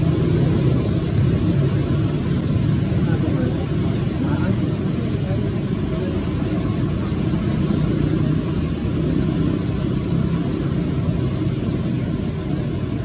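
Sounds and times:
high hiss: 0.0 - 13.0
low rumble: 0.0 - 13.0.

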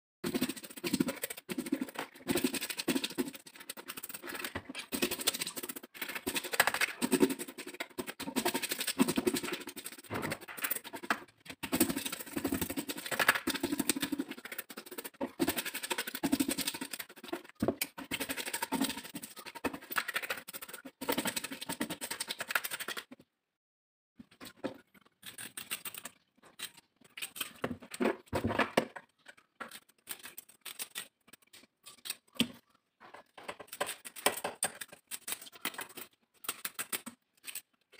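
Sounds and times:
fish scales being scraped: 0.3 - 23.0.

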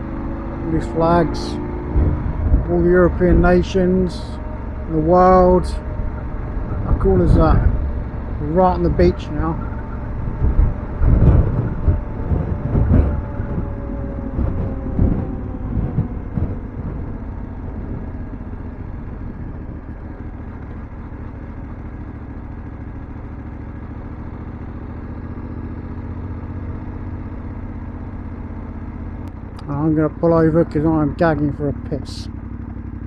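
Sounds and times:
motorcycle engine running: 0.0 - 33.0
thumps: 1.8 - 18.5.

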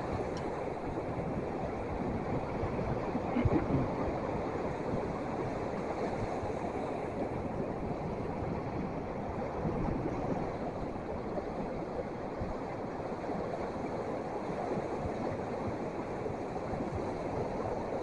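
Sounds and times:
wind: 0.0 - 18.0
surf rushing: 1.7 - 8.4.

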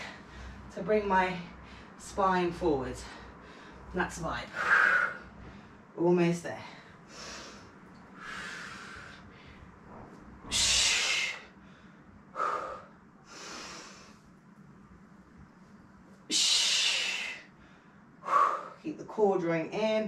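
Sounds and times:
woman breathing hard: 4.5 - 5.9, 6.6 - 9.8, 10.5 - 14.3, 16.4 - 18.8
loud sharp breaths: 10.5 - 14.2, 16.4 - 18.8.

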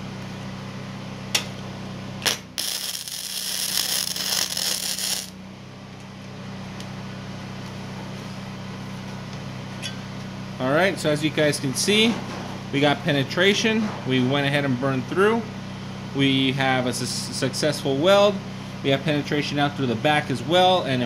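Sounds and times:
steady low hum: 0.0 - 21.0
welding arc crackling: 2.2 - 5.4.

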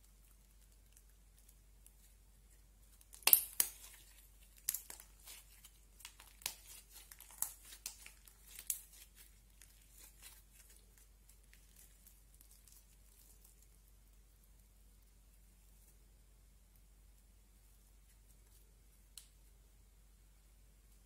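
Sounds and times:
slime squeezed with sticky crackles: 2.9 - 13.8.

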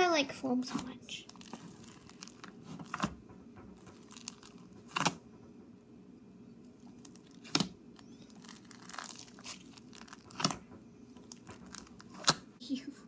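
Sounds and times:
soft crackles: 0.6 - 3.2, 3.8 - 5.2, 6.7 - 12.5
slime squelching: 0.6 - 5.2, 6.7 - 12.6.

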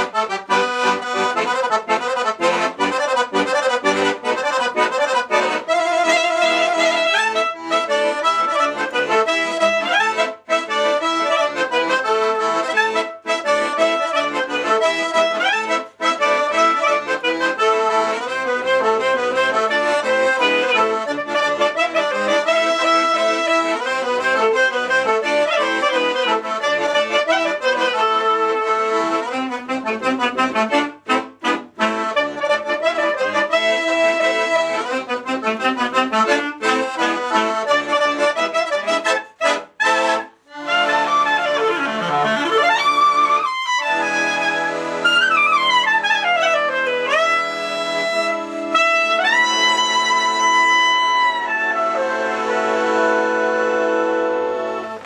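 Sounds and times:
accordion dance tune: 0.0 - 55.0
clarinet melody: 0.0 - 55.0.

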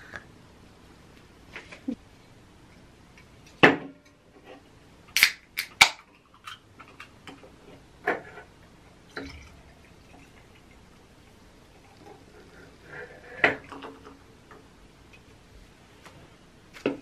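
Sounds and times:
beer can cracked open: 5.1 - 6.6.

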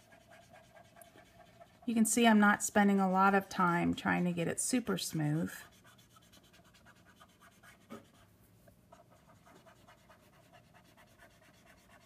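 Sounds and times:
marker rubbing on paper: 0.0 - 2.3, 5.2 - 8.3, 8.9 - 12.0.

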